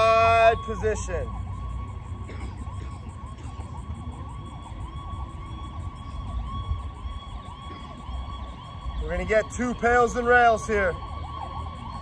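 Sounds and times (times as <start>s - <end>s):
wind rumbling on microphone: 3.0s - 9.7s.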